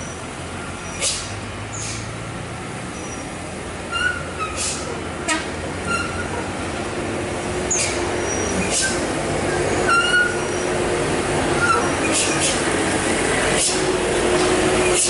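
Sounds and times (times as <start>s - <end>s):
diesel engines droning: 0.0s - 15.0s
short hisses: 1.0s - 2.1s, 4.6s - 4.9s
brief high squeaks: 7.7s - 9.0s, 9.9s - 10.5s.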